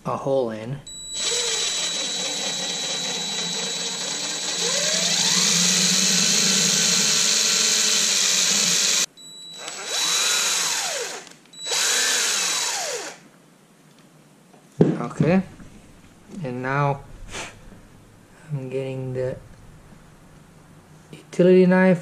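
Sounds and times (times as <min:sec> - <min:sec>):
cordless drill boring rubber: 0:01.1 - 0:13.2.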